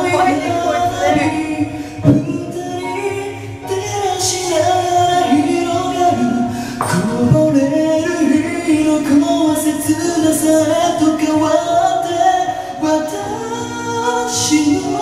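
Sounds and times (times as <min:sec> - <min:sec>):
karaoke backing track: 0:00.0 - 0:15.0
man singing into microphone: 0:00.0 - 0:15.0.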